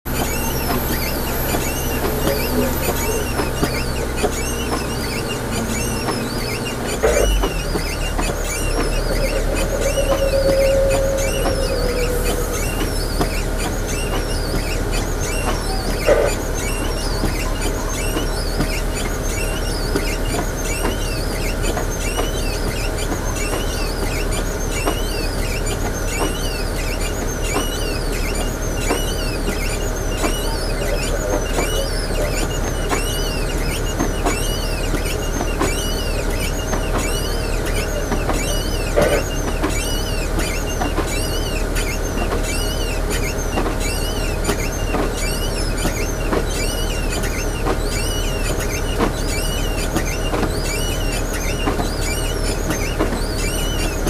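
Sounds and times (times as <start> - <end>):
vehicle engine running: 0.1 - 54.0
high rising and falling chirp: 7.6 - 14.5.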